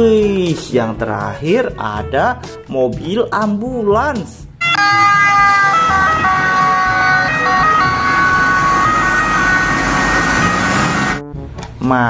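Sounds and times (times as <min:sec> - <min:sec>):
road traffic noise: 0:04.6 - 0:11.2
two-tone ambulance siren: 0:04.6 - 0:11.2.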